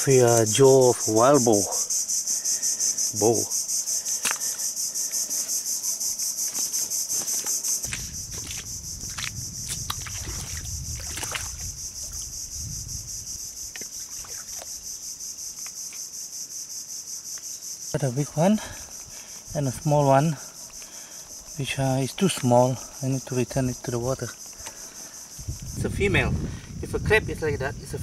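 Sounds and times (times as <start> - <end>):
insect chorus pulsing buzz: 0.0 - 28.0
boots moving through mud and water: 6.5 - 12.3, 13.8 - 14.7.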